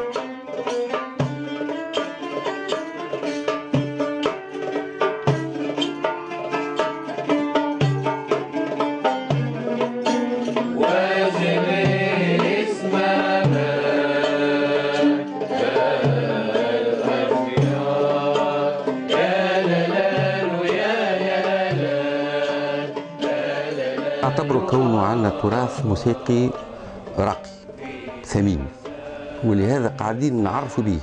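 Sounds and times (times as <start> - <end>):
oud plucking a melody: 0.0 - 31.0
low goblet drum strokes: 9.3 - 30.9
several voices singing: 9.8 - 31.0.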